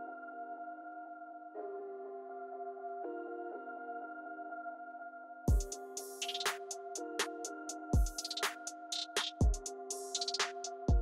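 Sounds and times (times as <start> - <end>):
deep kick drum: 5.5 - 5.7, 8.0 - 8.2, 9.4 - 9.6
held synth chords: 5.5 - 11.0
sharp hi-hat and snare hits: 5.5 - 11.0.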